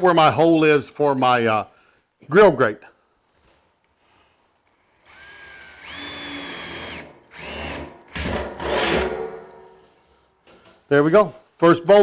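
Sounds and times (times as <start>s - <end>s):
cordless drill boring into steel: 4.7s - 9.0s.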